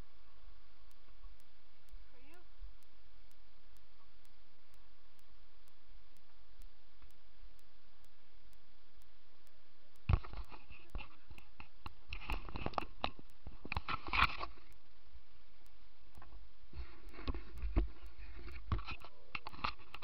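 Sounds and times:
steady hiss: 0:00.0 - 0:20.0
microphone handling noise: 0:10.0 - 0:14.8, 0:16.2 - 0:20.0.

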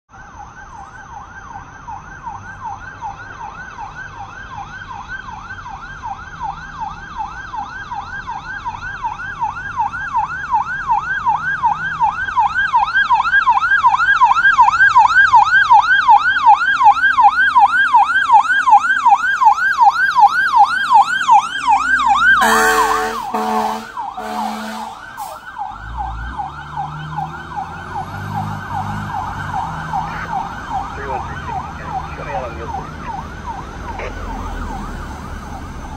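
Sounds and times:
fire engine siren yelping: 0:00.1 - 0:35.9
truck engine rumble: 0:00.1 - 0:35.9
loud short horn blasts: 0:22.4 - 0:25.0.

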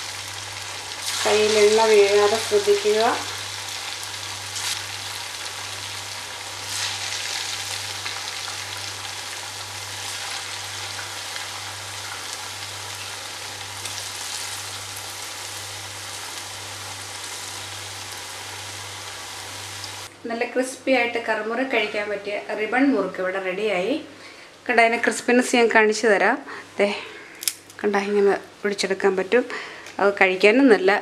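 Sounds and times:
dough sizzling in hot oil: 0:00.0 - 0:20.1.

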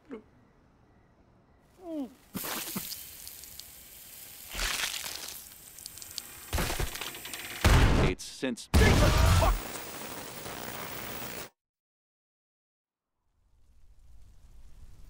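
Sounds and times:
laser beam hissing and sizzling: 0:09.4 - 0:11.5.

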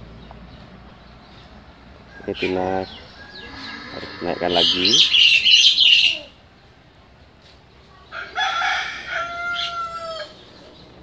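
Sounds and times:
rooster crowing: 0:02.1 - 0:05.3, 0:08.1 - 0:10.4.

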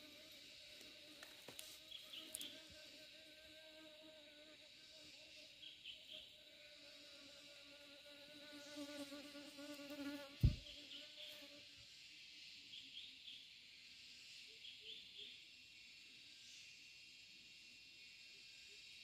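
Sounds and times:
insect buzzing close by: 0:00.0 - 0:14.4
insect chirps: 0:00.0 - 0:19.0
insects droning: 0:00.0 - 0:19.0
sharp thump: 0:10.4 - 0:10.7.

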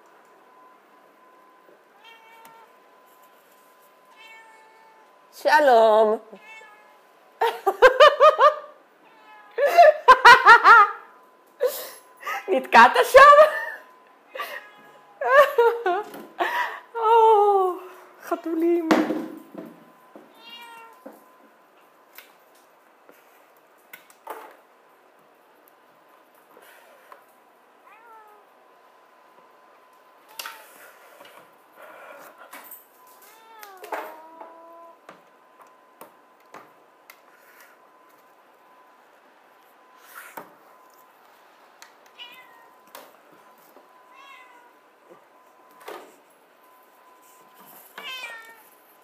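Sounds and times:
cat meowing: 0:01.9 - 0:02.8, 0:04.1 - 0:05.2, 0:06.4 - 0:07.0, 0:09.0 - 0:09.6, 0:20.3 - 0:21.0, 0:27.8 - 0:28.5, 0:33.3 - 0:35.0, 0:42.2 - 0:42.8, 0:44.1 - 0:44.8, 0:48.0 - 0:48.7.

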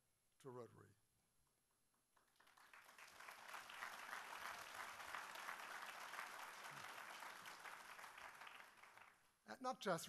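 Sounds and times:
audience applauding: 0:02.2 - 0:09.3.

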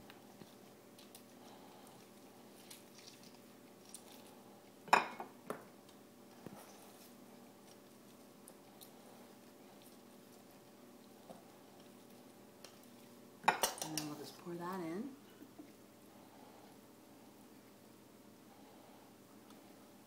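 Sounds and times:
lemon squishing on citrus reamer: 0:00.0 - 0:04.4.

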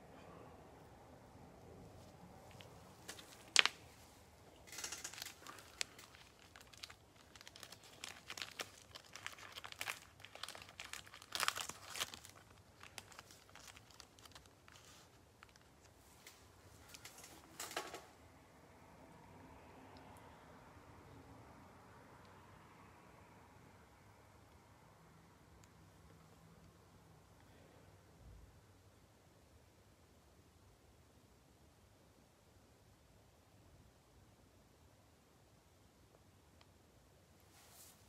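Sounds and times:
plastic wrap crinkling: 0:02.0 - 0:18.0.

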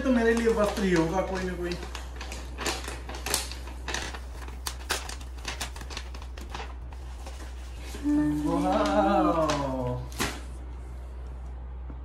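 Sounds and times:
shopping bag crinkling: 0:00.0 - 0:10.5.

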